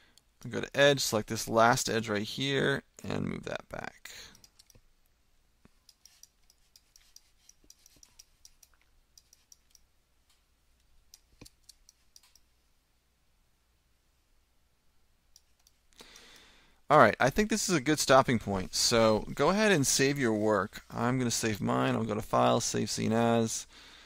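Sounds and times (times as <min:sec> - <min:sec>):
mouse and keyboard clicking: 0:05.8 - 0:09.9.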